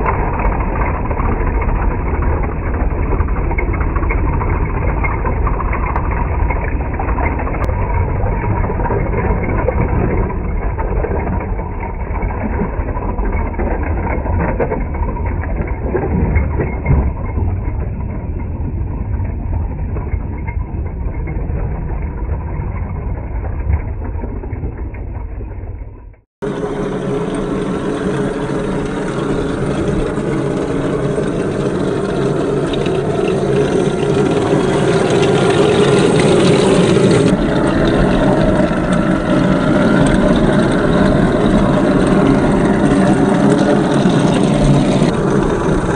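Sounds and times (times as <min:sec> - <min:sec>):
simulated tank engine sound: 0:00.0 - 0:45.9
gearboxes and tracks on rocks: 0:26.0 - 0:45.9.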